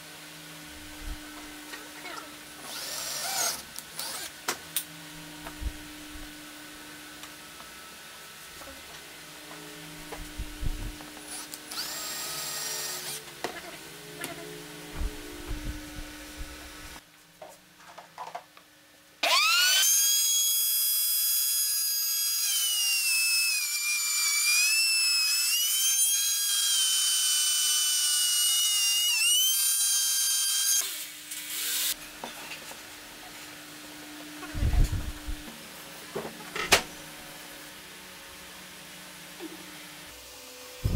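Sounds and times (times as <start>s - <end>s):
cordless drill boring wood: 2.6s - 4.4s, 11.3s - 13.3s, 19.2s - 32.0s
table saw whining: 10.4s - 13.4s, 19.2s - 32.0s.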